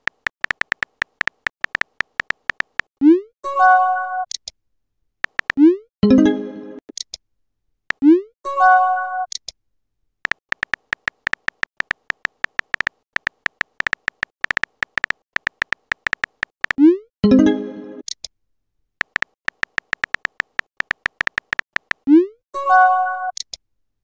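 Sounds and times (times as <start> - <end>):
keyboard tap clicks: 0.0 - 2.9, 5.2 - 5.6, 10.3 - 16.8, 19.0 - 22.0.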